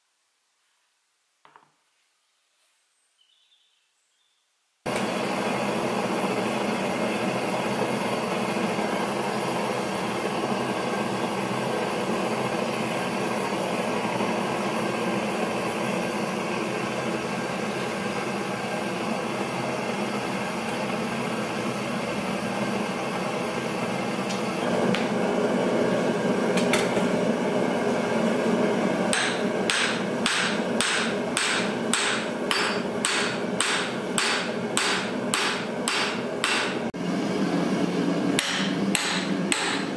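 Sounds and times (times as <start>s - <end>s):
gas forge burner rushing: 4.9s - 39.9s
hammer striking punch: 29.1s - 36.8s, 38.4s - 39.9s.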